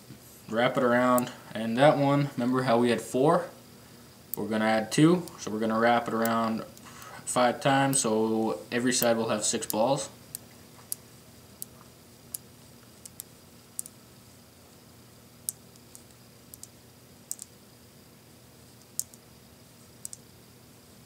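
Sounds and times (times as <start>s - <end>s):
magnet balls clicking together: 11.6s - 14.0s, 15.5s - 17.6s, 18.8s - 19.2s, 20.0s - 20.3s.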